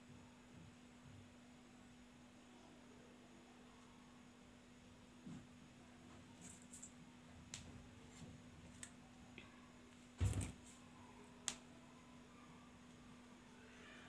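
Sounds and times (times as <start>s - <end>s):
dull thump: 10.2s - 10.6s.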